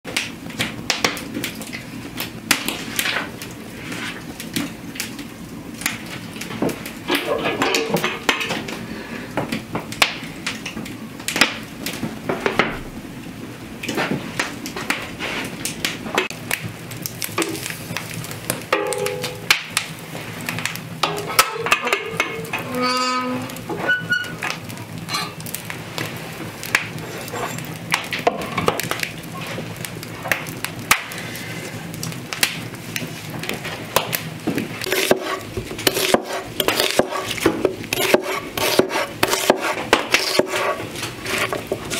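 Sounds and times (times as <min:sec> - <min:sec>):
metal cookware clinking: 0:18.7 - 0:19.5, 0:21.0 - 0:23.4.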